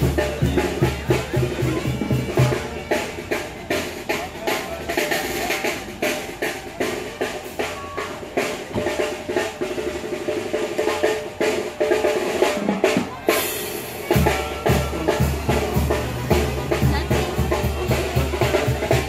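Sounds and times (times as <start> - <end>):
music with drum beat: 0.0 - 19.0.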